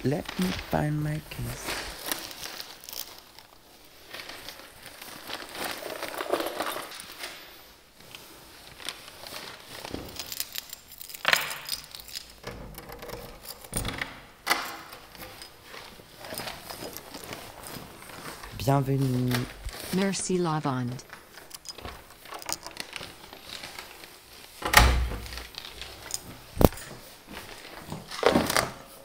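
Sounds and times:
rustling: 0:00.0 - 0:12.5, 0:14.7 - 0:29.0
keys jangling: 0:09.8 - 0:18.5, 0:21.3 - 0:23.9, 0:25.2 - 0:27.5.

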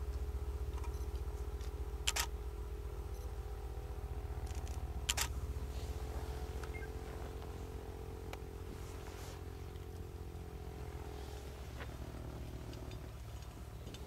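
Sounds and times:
camera shutter clicking: 0:02.1 - 0:02.3, 0:04.5 - 0:05.3.

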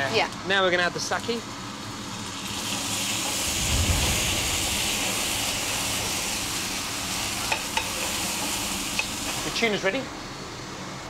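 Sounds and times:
pan hissing and sizzling: 0:02.0 - 0:09.8.

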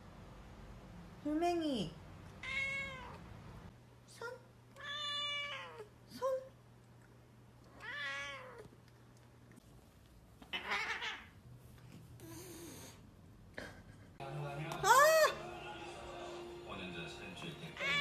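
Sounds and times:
cat meowing: 0:02.4 - 0:03.2, 0:04.8 - 0:05.9, 0:07.7 - 0:08.7, 0:10.5 - 0:11.4, 0:17.8 - 0:18.0
cat raspy call: 0:02.4 - 0:03.2, 0:04.8 - 0:05.9, 0:07.7 - 0:08.7, 0:10.5 - 0:11.4, 0:17.8 - 0:18.0
cat chirping calls: 0:10.5 - 0:11.4.

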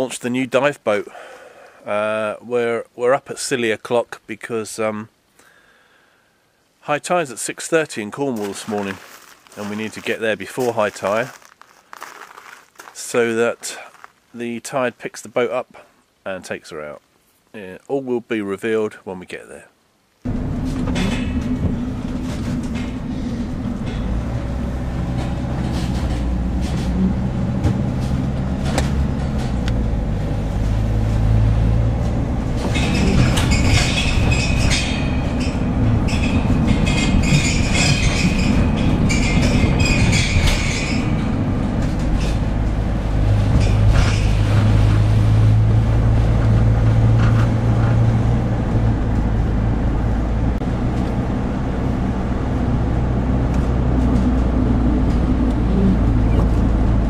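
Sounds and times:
van engine and tyre noise: 0:08.2 - 0:14.2, 0:20.3 - 0:57.0.

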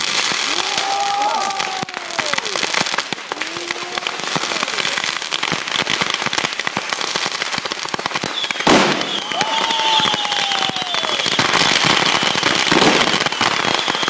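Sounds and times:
fireworks crackling and popping: 0:00.0 - 0:14.0
firework whistling: 0:07.9 - 0:14.0
loud firework bang: 0:08.3 - 0:10.8.

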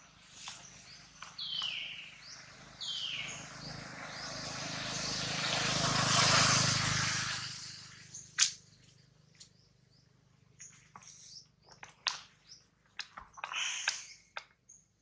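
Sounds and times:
passing vehicle engine: 0:00.6 - 0:09.3.

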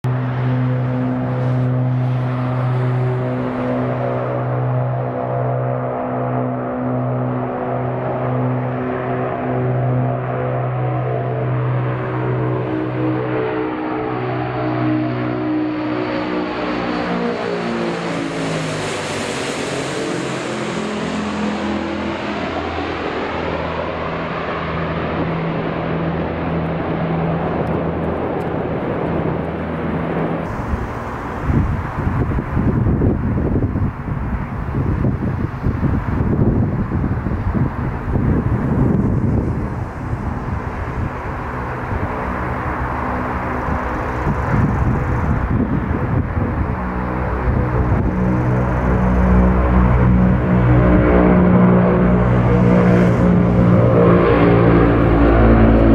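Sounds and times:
propeller aircraft passing overhead: 0:00.0 - 0:55.9
turboprop engines drone: 0:00.0 - 0:55.9
engine hiss: 0:30.4 - 0:34.0.

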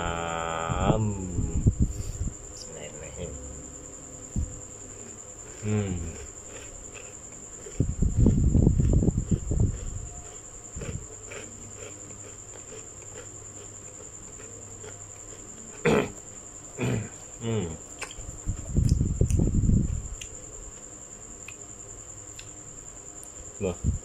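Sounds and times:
person humming mm: 0:00.0 - 0:01.8, 0:05.5 - 0:06.3, 0:16.8 - 0:17.8
crackly eating bursts: 0:00.0 - 0:24.0
faint high-pitched whine: 0:00.0 - 0:24.0.

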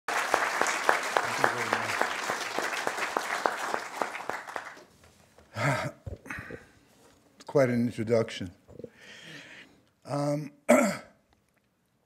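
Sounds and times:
audience applauding: 0:00.1 - 0:04.9.

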